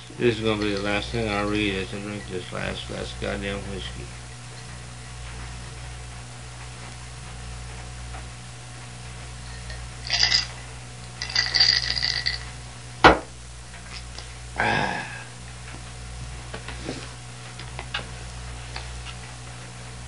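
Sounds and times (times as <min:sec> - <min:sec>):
hissy clinking noises: 0:00.0 - 0:07.0, 0:09.2 - 0:12.6
low electrical hum: 0:00.0 - 0:20.0
sharp knock on a table: 0:13.0 - 0:13.3.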